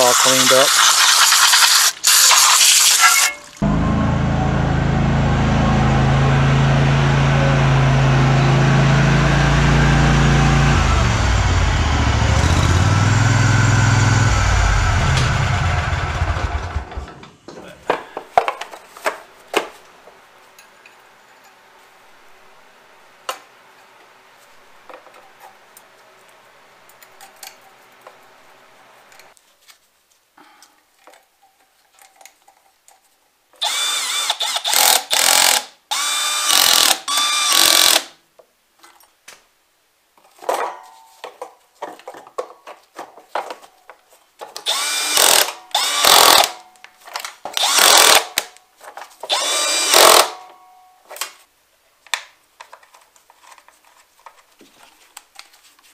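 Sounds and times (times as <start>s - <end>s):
power drill whining: 8.5s - 17.1s, 33.6s - 38.1s, 44.6s - 46.6s, 47.6s - 48.4s, 49.3s - 50.4s.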